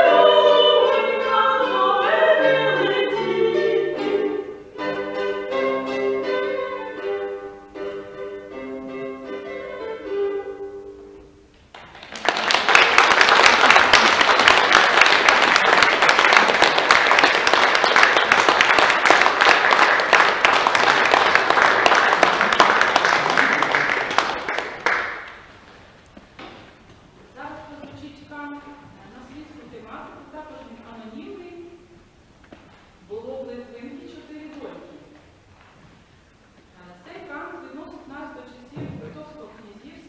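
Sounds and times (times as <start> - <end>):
audience applauding: 11.7 - 25.9.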